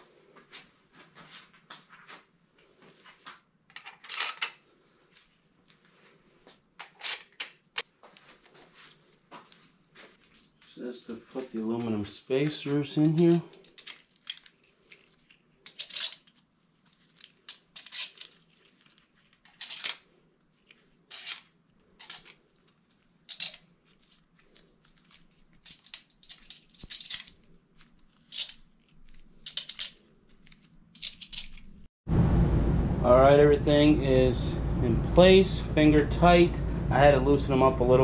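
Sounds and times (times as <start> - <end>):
small metal parts clicking and scraping: 3.7 - 5.3, 6.8 - 9.0, 12.5 - 31.9.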